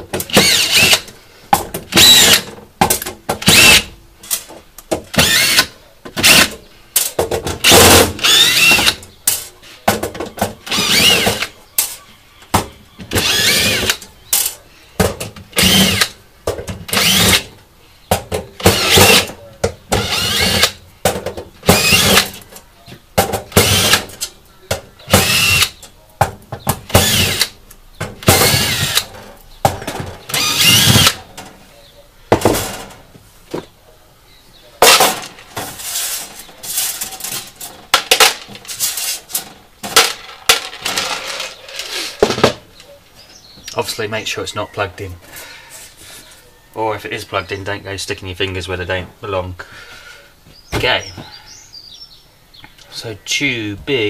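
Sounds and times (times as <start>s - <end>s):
cordless drill whirring: 0.3s - 1.0s, 2.0s - 2.4s, 3.5s - 3.8s, 5.2s - 6.5s, 8.2s - 9.0s, 10.7s - 11.5s, 13.2s - 14.0s, 15.6s - 16.1s, 16.9s - 17.4s, 18.7s - 19.3s, 20.0s - 20.8s, 21.7s - 22.2s, 23.6s - 24.0s, 25.1s - 25.7s, 27.0s - 27.5s, 28.3s - 29.1s, 30.4s - 31.2s.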